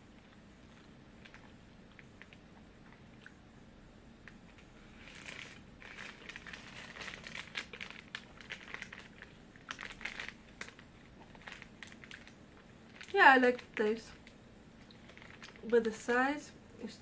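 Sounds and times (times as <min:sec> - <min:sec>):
plastic wrapper crinkling: 0:04.5 - 0:16.1.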